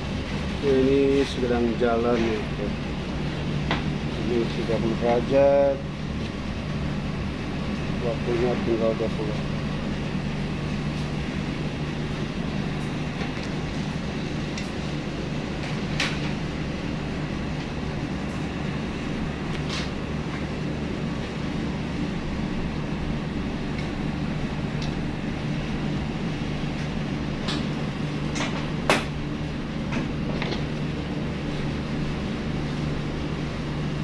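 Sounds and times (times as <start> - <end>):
low machine hum: 0.0 - 34.0.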